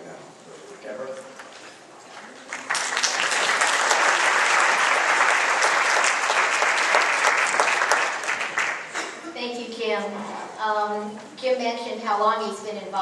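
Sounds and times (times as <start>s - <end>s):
audience applauding: 2.2s - 9.2s.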